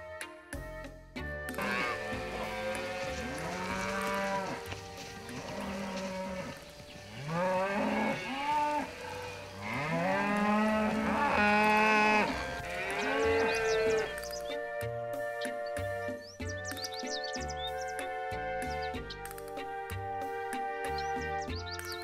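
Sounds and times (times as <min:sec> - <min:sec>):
cattle mooing: 0:01.6 - 0:14.2.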